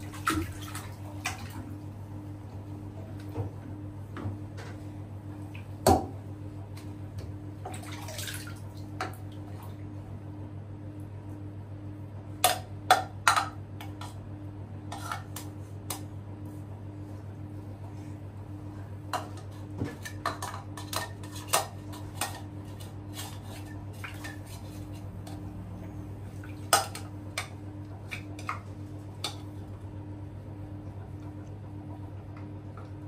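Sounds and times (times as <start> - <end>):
steady low hum: 0.0 - 33.0
water splashing: 7.7 - 8.7.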